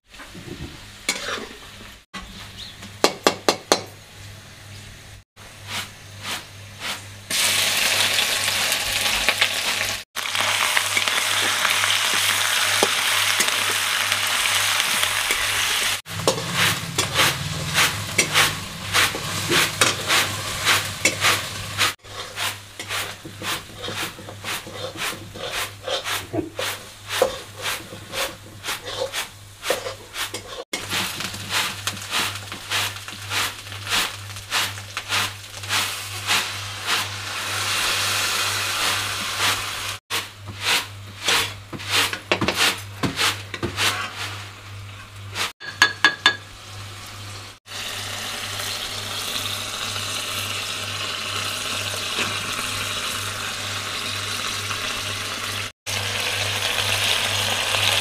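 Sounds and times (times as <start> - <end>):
utensils scraping a pan: 1.1 - 1.8, 10.8 - 37.4, 38.8 - 45.5
frying sizzle: 3.0 - 58.0.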